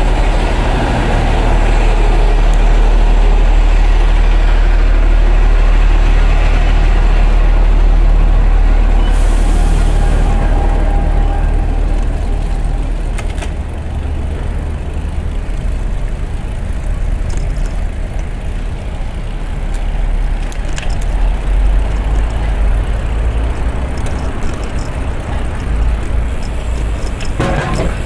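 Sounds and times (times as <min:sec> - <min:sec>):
road traffic: 0:00.0 - 0:28.0
bicycle tyre noise: 0:07.6 - 0:28.0.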